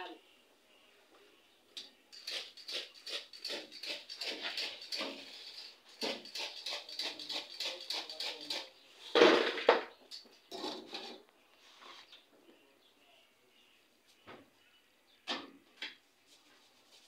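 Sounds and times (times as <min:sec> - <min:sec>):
metal fryer basket and tongs clattering: 0:02.1 - 0:08.7.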